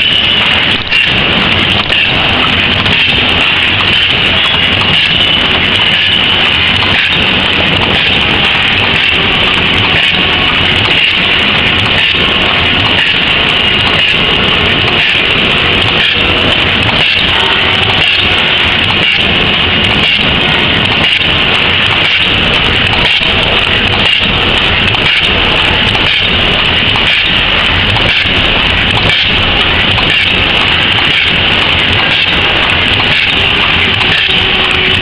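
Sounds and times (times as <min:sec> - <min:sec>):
machine clatter and hiss: 0:00.0 - 0:35.0
regular machine knock: 0:00.0 - 0:35.0.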